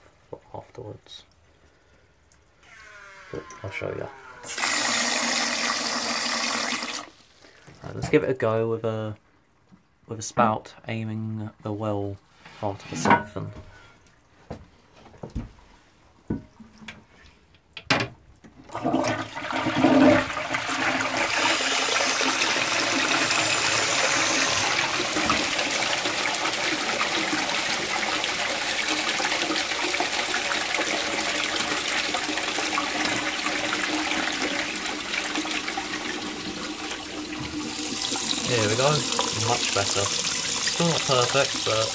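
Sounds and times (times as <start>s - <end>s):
toilet flushing: 2.5s - 7.8s, 18.7s - 41.9s.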